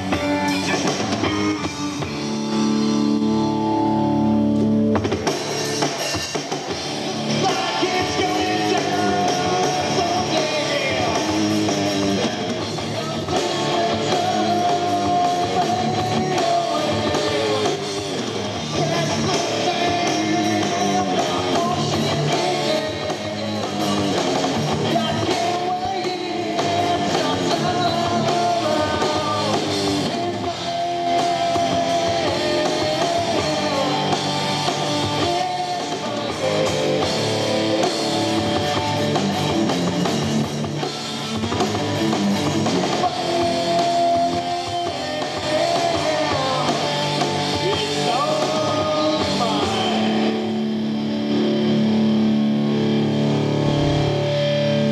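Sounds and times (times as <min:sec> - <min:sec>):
bass guitar: 0:00.0 - 0:54.9
drum kit: 0:00.0 - 0:54.9
electric guitar: 0:00.0 - 0:54.9
person singing into microphone: 0:07.3 - 0:18.0, 0:18.6 - 0:23.9, 0:24.8 - 0:37.8, 0:43.0 - 0:50.4.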